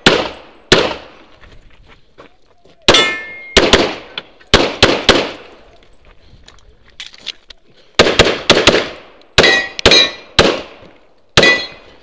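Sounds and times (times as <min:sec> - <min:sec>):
pistol shots: 0:00.0 - 0:01.1, 0:02.9 - 0:05.5, 0:08.0 - 0:10.8, 0:11.4 - 0:11.8
steel target ringing: 0:02.9 - 0:03.6, 0:09.4 - 0:10.3, 0:11.4 - 0:11.9.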